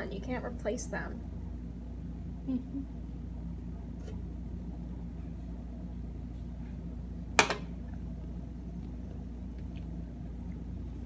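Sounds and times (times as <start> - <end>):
low room tone hum: 0.0 - 11.0
can knocking on counter: 7.4 - 7.7.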